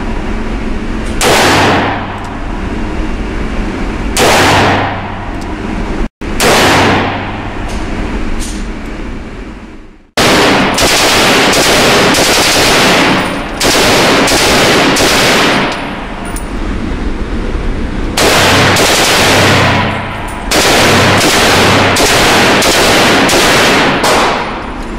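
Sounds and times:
gunshot with long echo: 0:01.2 - 0:02.2, 0:04.2 - 0:05.2, 0:06.3 - 0:07.5, 0:10.2 - 0:15.9, 0:18.2 - 0:24.7
rifle firing strings of shots: 0:04.2 - 0:05.1, 0:10.2 - 0:16.4, 0:18.2 - 0:24.9.

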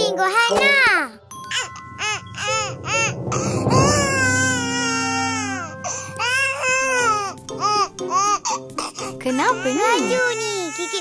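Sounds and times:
baby crying: 0:03.8 - 0:11.0.

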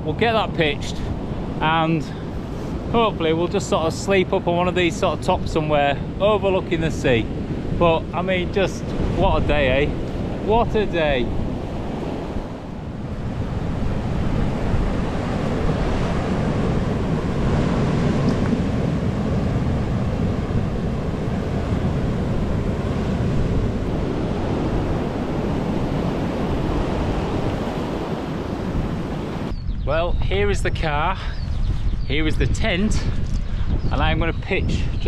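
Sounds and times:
wind buffeting microphone: 0:00.0 - 0:35.0
surf breaking on beach: 0:06.3 - 0:29.5.

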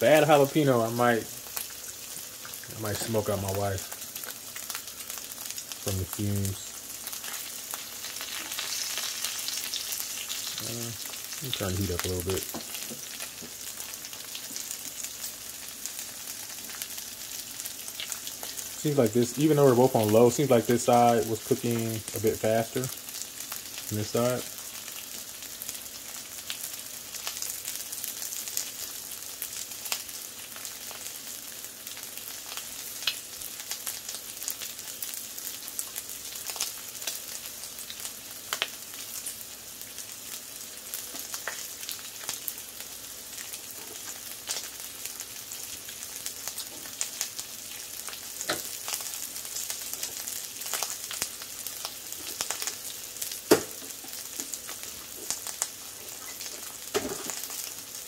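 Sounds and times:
bacon sizzling on a griddle: 0:00.0 - 0:58.0
fat crackling and popping: 0:00.0 - 0:58.0.

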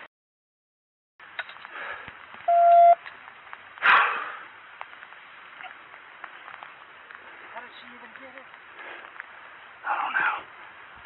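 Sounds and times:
electronic beep: 0:02.5 - 0:03.0
faint clicks and handling noise: 0:04.7 - 0:09.5.

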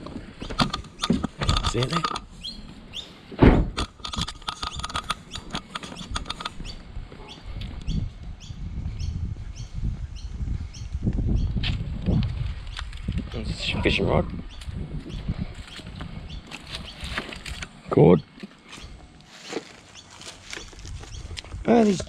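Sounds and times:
bird chirping: 0:00.3 - 0:03.2, 0:04.0 - 0:11.6, 0:14.4 - 0:17.4, 0:18.1 - 0:19.0
car door shutting: 0:03.4 - 0:03.8
footsteps: 0:18.4 - 0:22.0.

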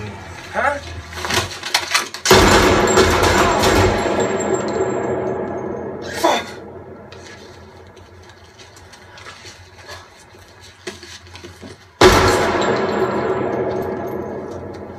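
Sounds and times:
sharp crack with falling ring: 0:01.7 - 0:08.1, 0:12.0 - 0:14.9.

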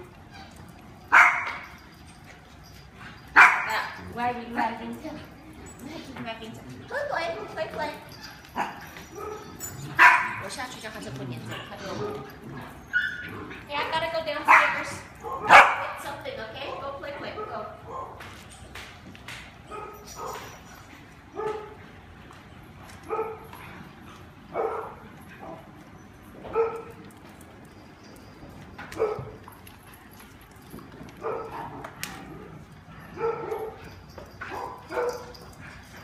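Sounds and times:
dog barking: 0:01.1 - 0:01.6, 0:03.4 - 0:04.0, 0:08.6 - 0:10.4, 0:14.4 - 0:16.0, 0:17.4 - 0:18.2, 0:24.6 - 0:25.6, 0:33.2 - 0:33.8, 0:34.5 - 0:35.4.

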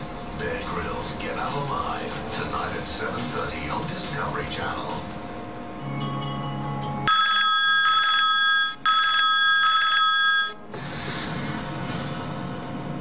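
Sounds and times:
mobile phone ringing: 0:07.1 - 0:10.7.

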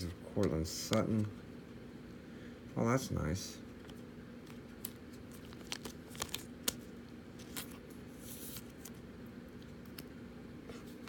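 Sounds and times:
faint steady hum: 0:00.0 - 0:11.0
cards sliding rustle: 0:03.7 - 0:11.0
cards clicking: 0:03.8 - 0:09.0.

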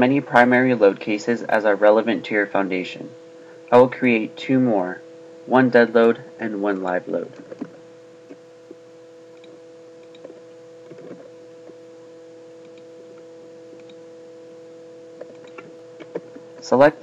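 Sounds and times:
electrical hum: 0:00.0 - 0:17.0
keystrokes: 0:09.4 - 0:11.2, 0:15.2 - 0:16.4
computer mouse clicks: 0:09.4 - 0:11.3, 0:12.6 - 0:12.9, 0:13.7 - 0:14.0, 0:15.2 - 0:16.4.

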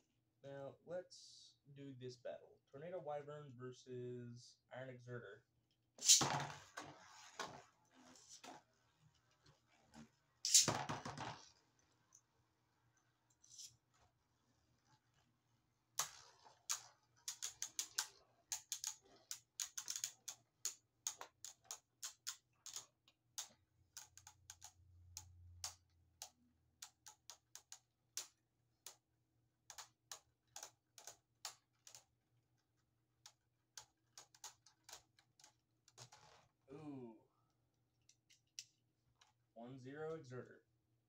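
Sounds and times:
spinning tops clashing: 0:10.5 - 0:10.7.

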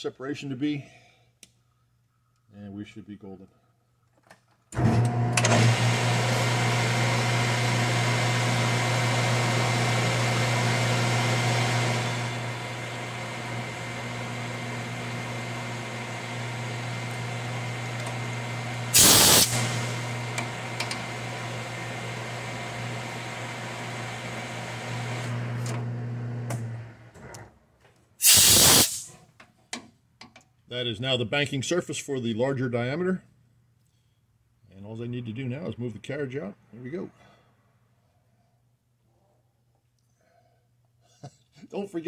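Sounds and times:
metal lathe running: 0:08.6 - 0:25.4.

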